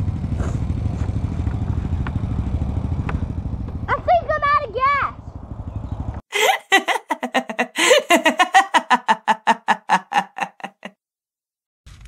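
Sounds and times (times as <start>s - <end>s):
man laughing: 6.3s - 10.9s.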